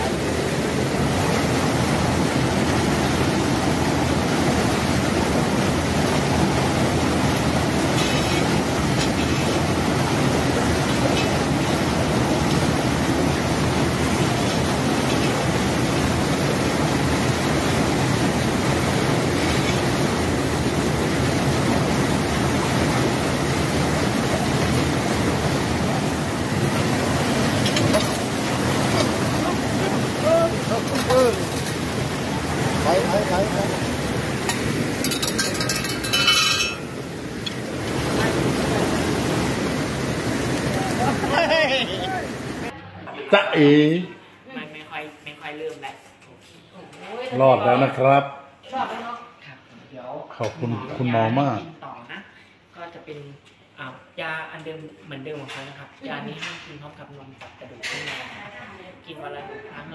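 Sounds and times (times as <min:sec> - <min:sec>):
floodwater rushing over weir: 0:00.0 - 0:42.8.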